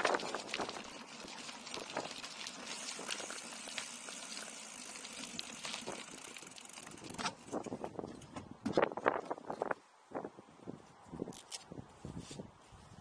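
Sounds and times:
gravel crunching: 0.0s - 9.8s.

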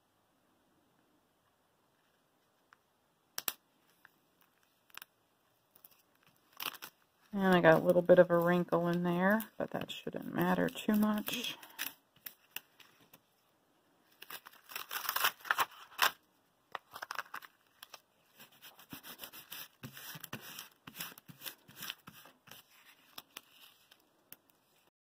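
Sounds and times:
plastic sheet crackling: 5.8s - 13.0s, 14.1s - 24.9s.

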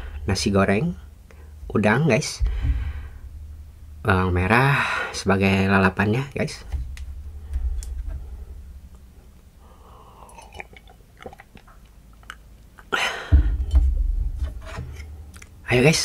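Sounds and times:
wet mouth clicks: 10.2s - 12.9s.

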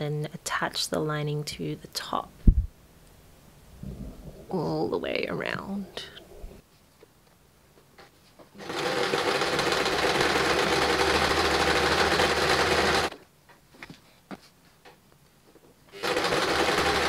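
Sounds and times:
sewing machine stitching: 8.6s - 13.1s, 15.9s - 17.0s.

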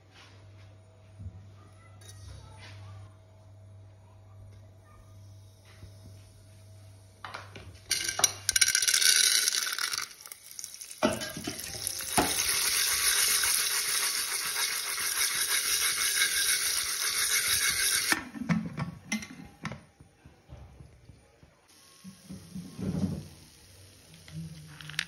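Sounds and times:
hot oil sizzling: 8.6s - 18.2s, 21.7s - 25.0s.

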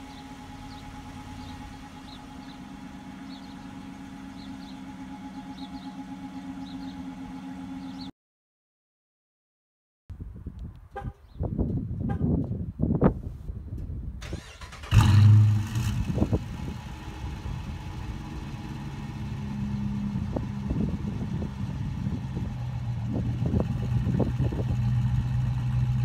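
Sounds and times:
car engine starting and idling: 0.0s - 8.1s, 14.2s - 26.0s.

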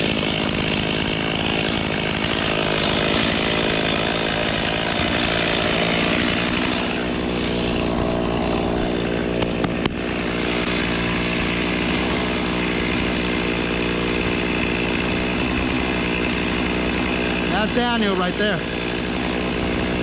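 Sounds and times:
chainsaw running: 0.0s - 20.0s.

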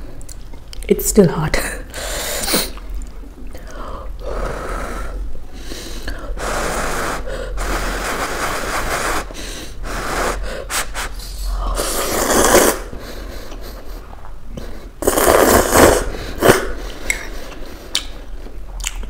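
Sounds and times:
person slurping noodles: 6.4s - 13.0s, 14.8s - 17.4s.

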